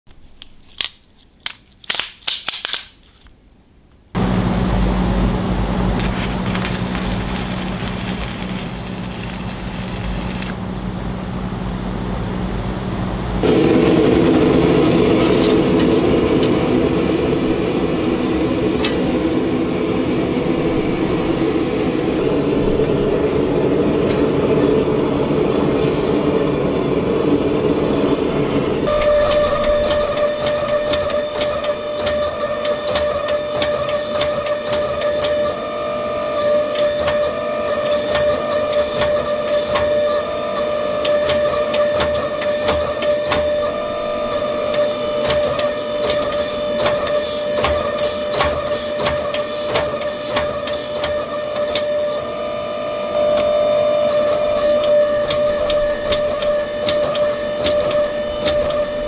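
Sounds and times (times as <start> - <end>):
steady hum: 3.4 - 33.7, 42.8 - 47.1
gas forge burner roaring: 4.1 - 59.0
crackling hiss: 6.0 - 10.6.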